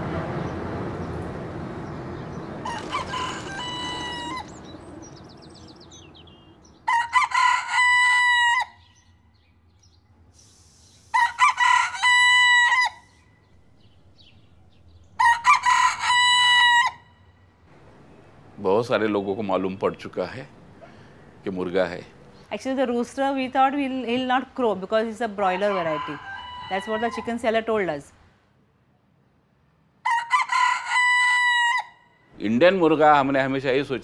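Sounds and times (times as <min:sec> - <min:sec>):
airplane rumble: 0:00.0 - 0:06.9, 0:17.6 - 0:24.2
rooster crowing: 0:02.4 - 0:04.8, 0:06.8 - 0:08.9, 0:11.1 - 0:13.2, 0:15.2 - 0:17.2, 0:25.4 - 0:27.6, 0:30.0 - 0:32.2.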